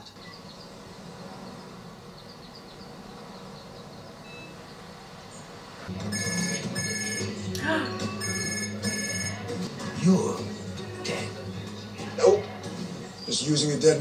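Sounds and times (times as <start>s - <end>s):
faint short beeps: 4.2s - 4.6s
phone ringing: 6.0s - 7.5s, 8.2s - 9.6s.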